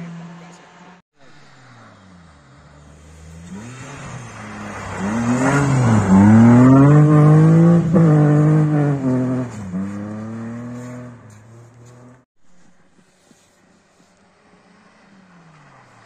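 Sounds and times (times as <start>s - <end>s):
rally car engine revving past: 1.4s - 12.2s.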